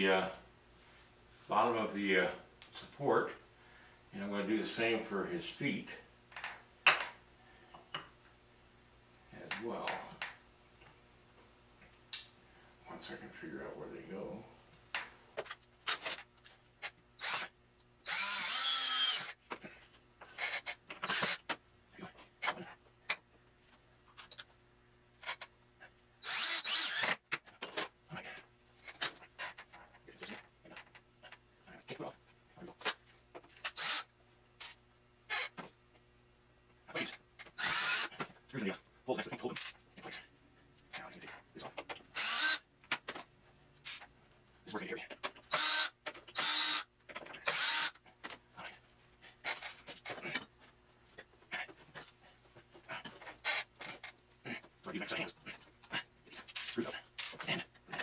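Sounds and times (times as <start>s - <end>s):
cordless drill spinning up: 17.2s - 19.4s, 20.4s - 21.4s, 26.2s - 27.2s, 33.7s - 34.1s, 37.6s - 38.1s, 42.2s - 42.6s, 45.5s - 46.8s, 47.4s - 48.0s.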